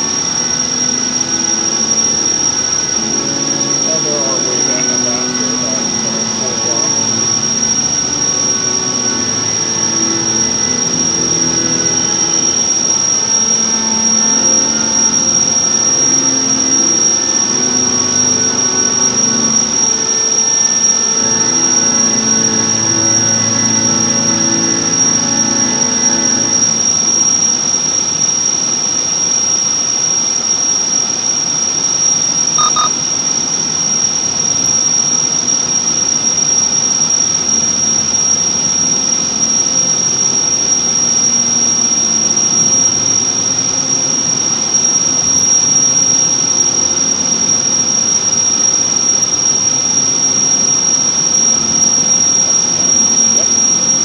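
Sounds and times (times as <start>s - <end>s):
faint double beep: 32.6s - 32.9s
high-pitched whine: 32.6s - 33.0s.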